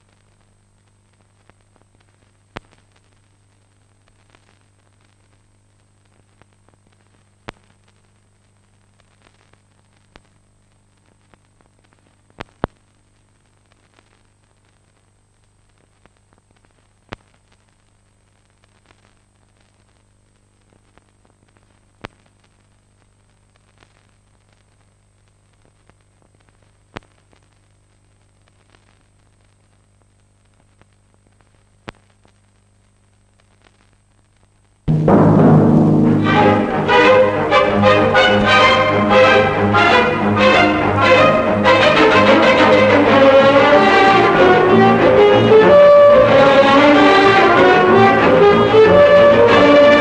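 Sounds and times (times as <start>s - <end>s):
low hum: 34.9s - 50.0s.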